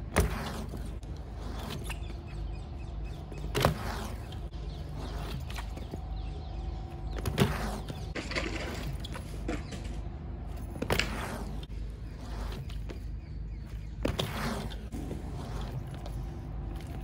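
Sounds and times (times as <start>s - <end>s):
bike hitting the ground: 0.0s - 2.0s, 3.3s - 4.4s, 7.0s - 11.7s
bike tyres rolling on concrete: 0.0s - 17.0s.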